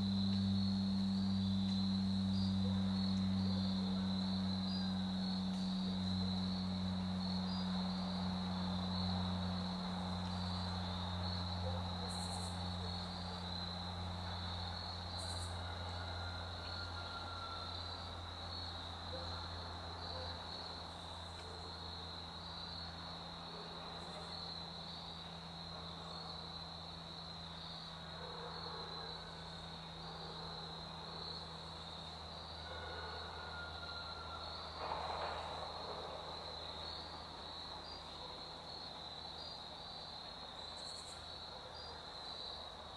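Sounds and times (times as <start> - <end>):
low steady hum: 0.0 - 32.7
insects trilling: 0.0 - 42.9.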